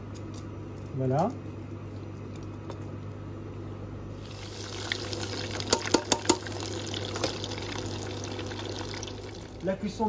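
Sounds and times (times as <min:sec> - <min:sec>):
chicken deep-frying sizzle: 0:04.2 - 0:09.7
oil popping and crackling: 0:04.2 - 0:09.7.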